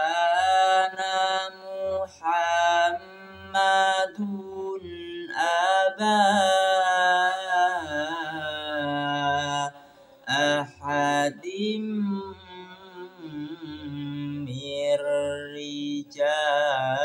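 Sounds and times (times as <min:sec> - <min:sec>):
man reciting melodically: 0:00.0 - 0:17.0.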